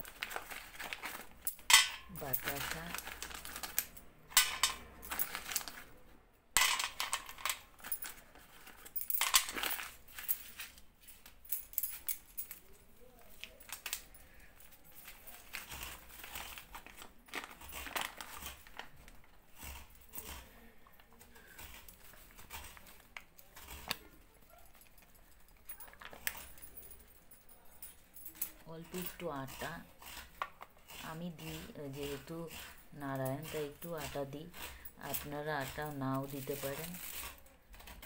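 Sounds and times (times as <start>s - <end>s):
plastic packet crinkling: 0.0s - 1.5s, 2.1s - 4.0s, 4.8s - 5.9s, 13.1s - 19.3s.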